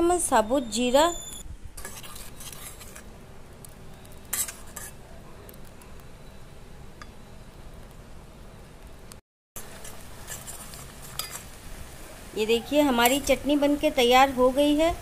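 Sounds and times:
spoon clinking and scraping a pan: 0:04.3 - 0:05.0, 0:09.7 - 0:11.5.

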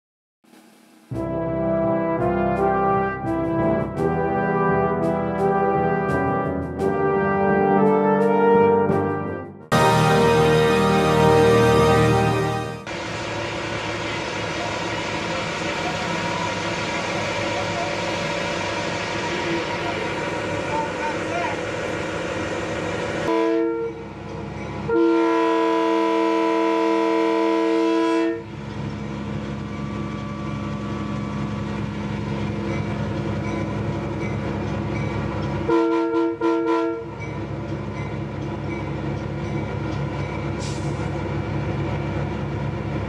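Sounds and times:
train running on rails: 0:00.5 - 0:08.5, 0:09.7 - 0:43.0
locomotive chime horn blasts: 0:01.2 - 0:12.9, 0:23.3 - 0:24.2, 0:24.8 - 0:28.6, 0:35.6 - 0:37.3.

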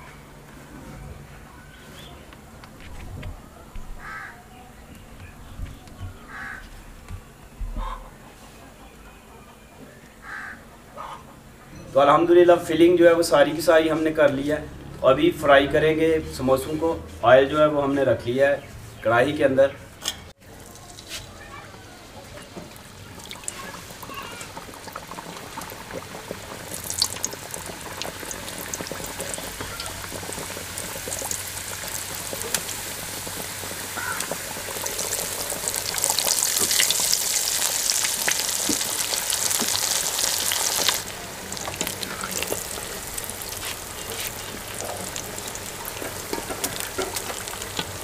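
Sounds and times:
food deep-frying in oil: 0:20.4 - 0:48.0.

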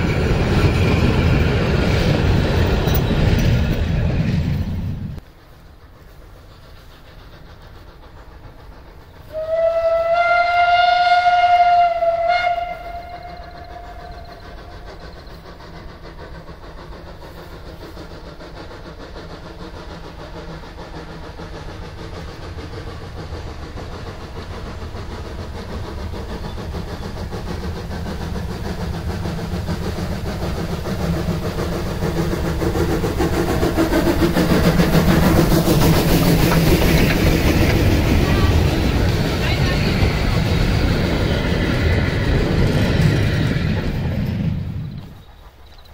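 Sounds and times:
train running noise: 0:00.0 - 0:45.9
steam locomotive whistle: 0:09.2 - 0:15.0.

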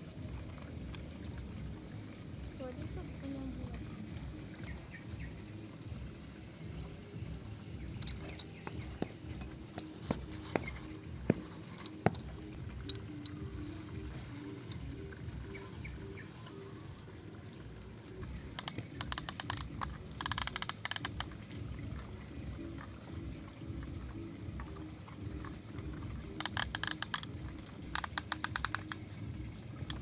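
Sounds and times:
rapid clicking: 0:18.2 - 0:21.5, 0:26.1 - 0:30.0.

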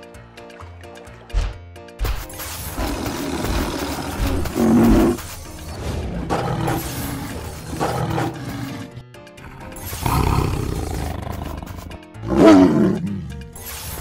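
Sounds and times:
background music: 0:00.0 - 0:14.0
big cat roars: 0:06.2 - 0:13.4.

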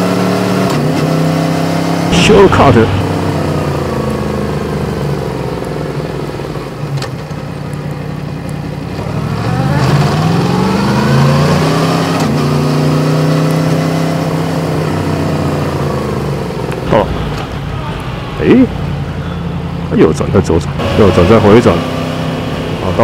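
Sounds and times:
motorcycle engine: 0:00.0 - 0:23.0.

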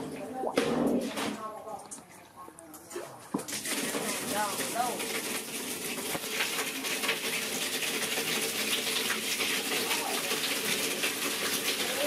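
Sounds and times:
hose water splashing into metal basin: 0:00.0 - 0:01.5, 0:02.9 - 0:12.0.

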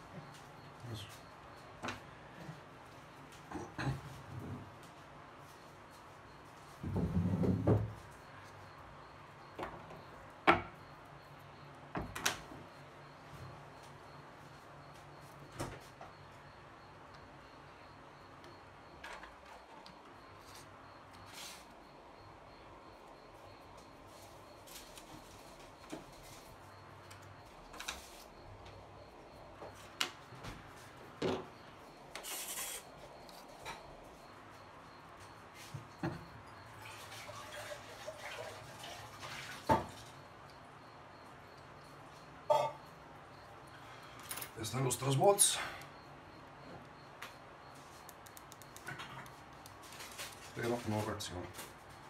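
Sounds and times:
tools handling rustle: 0:48.9 - 0:52.0.

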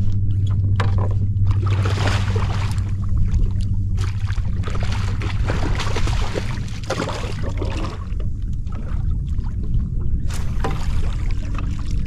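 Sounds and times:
wind rumble on microphone: 0:00.0 - 0:12.0
water splashing: 0:00.8 - 0:12.0.

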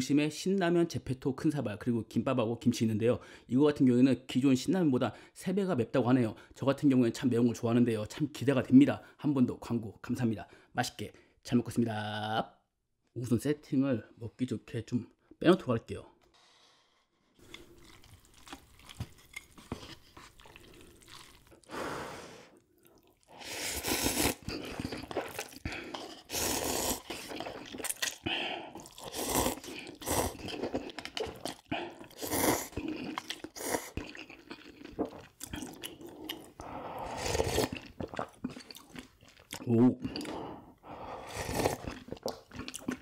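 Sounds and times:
chewing and crunching: 0:17.4 - 0:21.7, 0:22.6 - 0:36.7, 0:37.3 - 0:40.5, 0:41.2 - 0:43.0.

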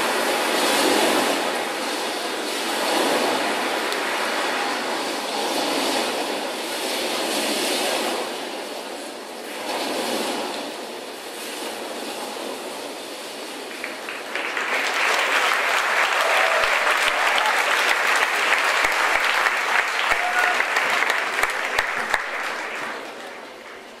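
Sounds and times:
audience applauding: 0:13.6 - 0:24.0.

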